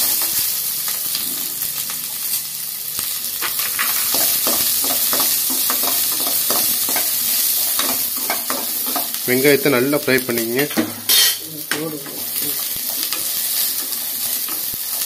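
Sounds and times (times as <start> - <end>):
onions sizzling in oil: 0.0 - 15.0
spoon scraping pan: 10.7 - 15.0.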